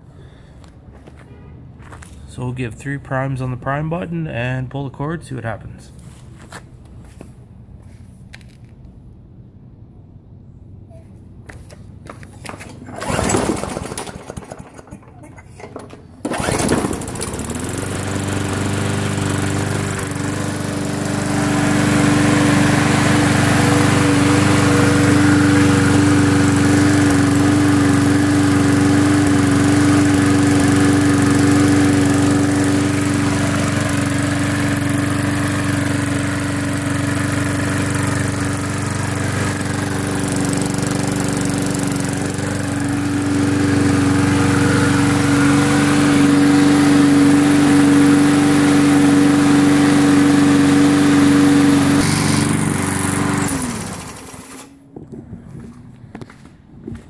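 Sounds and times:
lawn mower engine running: 0:12.4 - 0:56.3.

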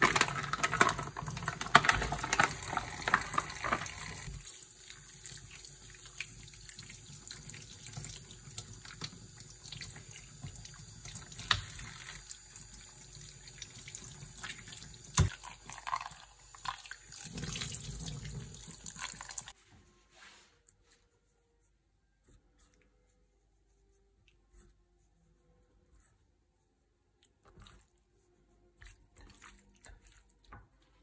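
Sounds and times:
tap water running into sink: 0:00.0 - 0:04.4.

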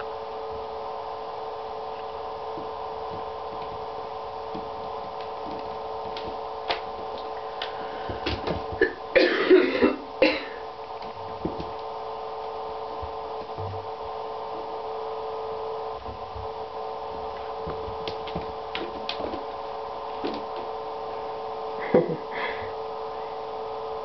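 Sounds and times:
steady hum: 0:00.0 - 0:24.0
kitten claws scrabbling on bathtub: 0:04.5 - 0:08.8, 0:17.6 - 0:19.5.

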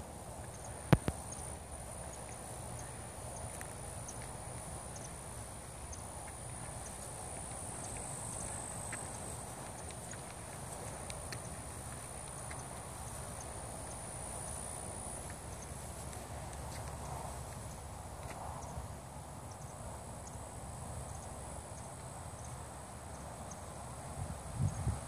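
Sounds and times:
faint scattered clicks: 0:00.4 - 0:18.9.

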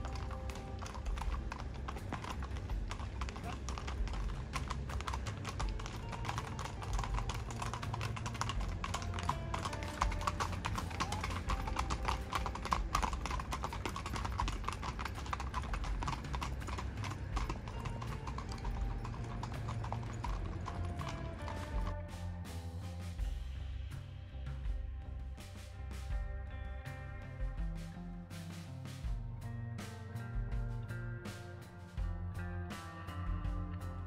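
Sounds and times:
horses' hooves clip-clopping on dirt: 0:00.0 - 0:22.7.

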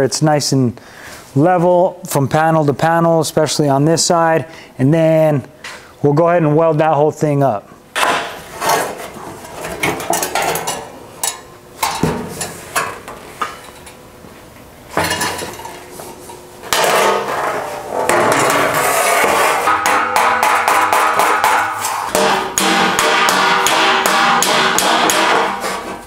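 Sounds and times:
loud continuous sound: 0:05.0 - 0:26.0.

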